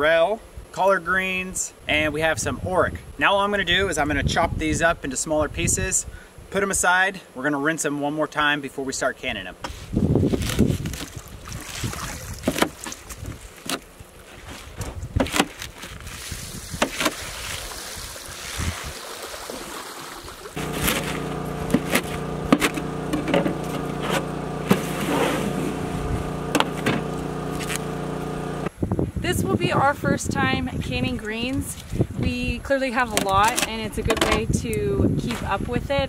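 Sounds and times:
steady engine-like hum: 0:20.6 - 0:28.7.

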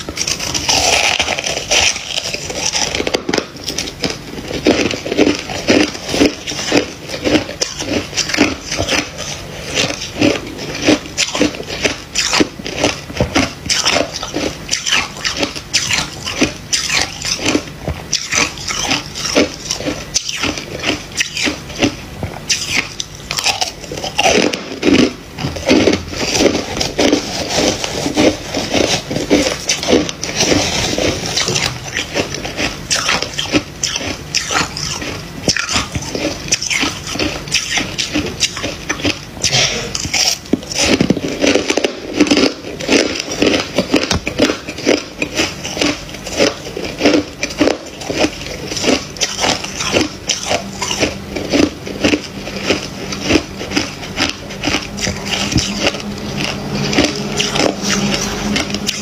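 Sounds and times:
frost being chewed and crunched: 0:00.0 - 0:59.0.

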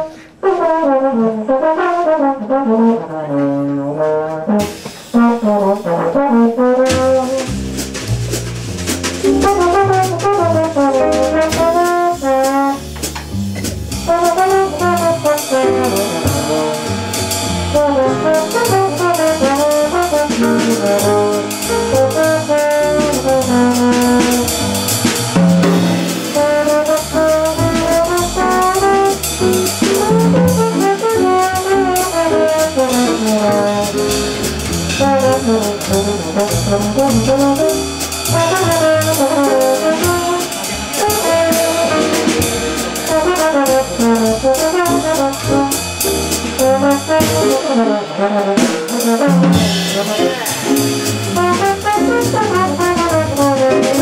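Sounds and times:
piano: 0:00.0 - 0:54.0
trombone melody: 0:00.0 - 0:54.0
upright bass: 0:03.8 - 0:54.0
drum kit with cymbals: 0:04.1 - 0:54.0.

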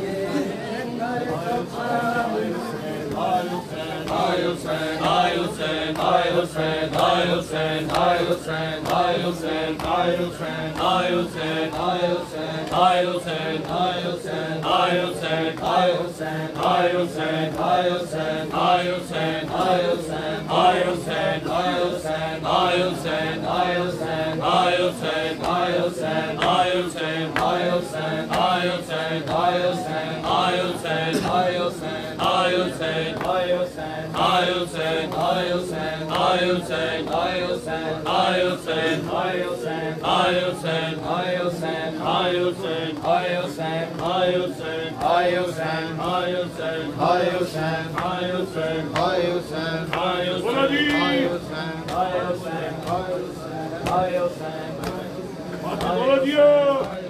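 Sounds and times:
men chanting in unison: 0:00.0 - 0:57.0.

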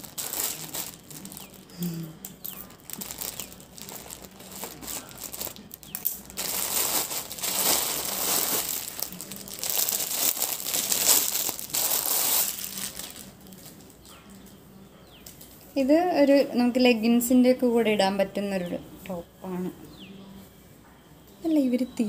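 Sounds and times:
plastic packaging crinkling: 0:00.0 - 0:14.0.

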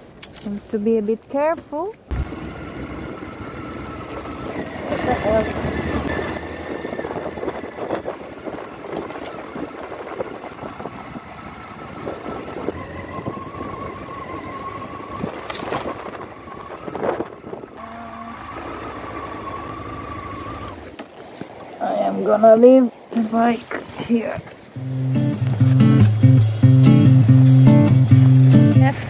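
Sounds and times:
motorcycle engine at low speed: 0:02.0 - 0:29.0
bike knocking and rattling: 0:07.8 - 0:11.5, 0:15.2 - 0:17.7.

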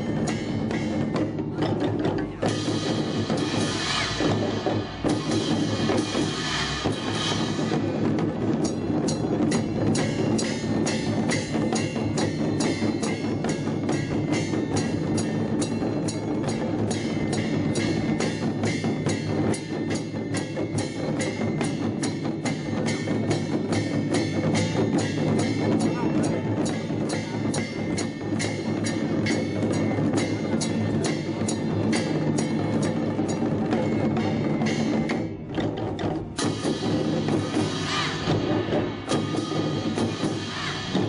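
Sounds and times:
drums beating: 0:00.0 - 0:41.0.

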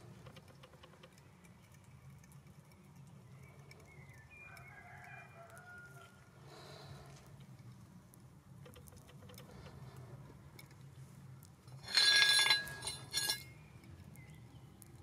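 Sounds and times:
scrap metal clinking: 0:11.7 - 0:13.6.

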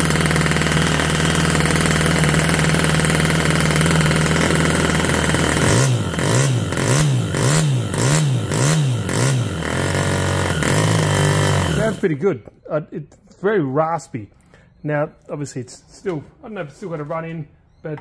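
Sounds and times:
model engine running raspy: 0:00.0 - 0:12.2.

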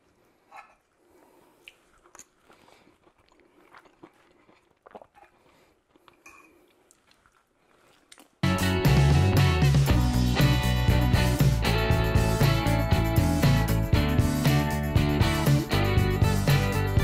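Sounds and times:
faint chewing: 0:00.0 - 0:08.4.

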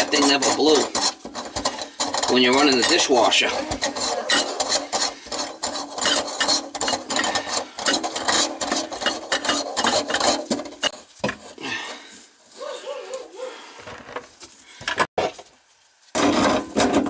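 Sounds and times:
metal nut scraping on threads: 0:00.0 - 0:11.6.

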